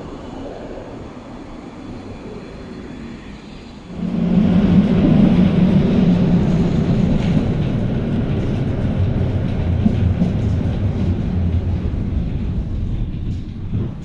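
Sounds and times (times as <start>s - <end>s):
tram rumbling on rails: 0.0s - 14.0s.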